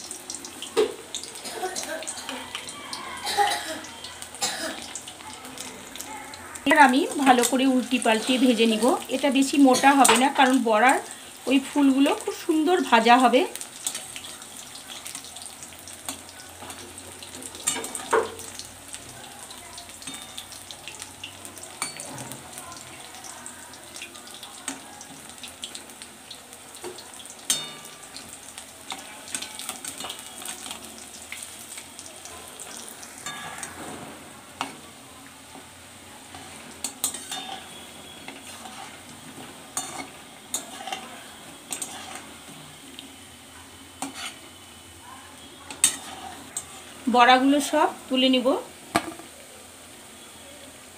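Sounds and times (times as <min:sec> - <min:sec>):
fritters sizzling in oil: 0:00.0 - 0:50.9
spatula scraping pan: 0:36.3 - 0:42.8, 0:44.0 - 0:44.6, 0:45.6 - 0:47.0.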